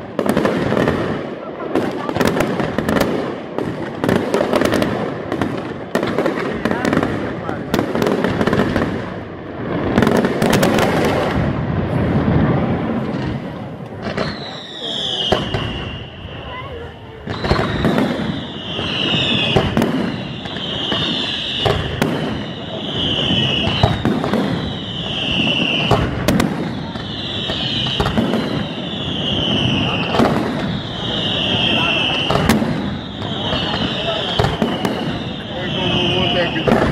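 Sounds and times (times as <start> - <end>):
fireworks bangs: 0.0 - 36.9
fireworks crackling: 0.0 - 36.9
falling firework whistle: 13.0 - 36.9.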